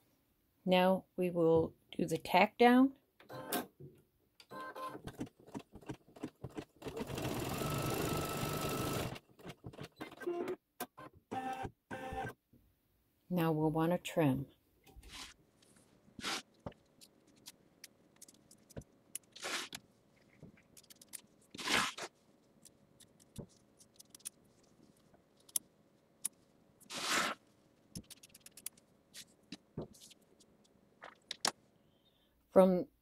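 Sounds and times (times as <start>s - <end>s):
scissors scraping through fabric: 16.2s - 16.5s, 19.3s - 19.8s, 21.0s - 22.1s, 26.8s - 27.4s
scissors snipping fabric: 26.8s - 27.4s.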